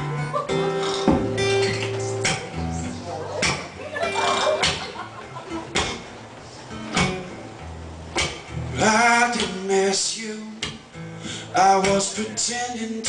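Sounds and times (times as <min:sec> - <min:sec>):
acoustic guitar strumming: 0:00.0 - 0:13.0
man singing: 0:08.7 - 0:13.0.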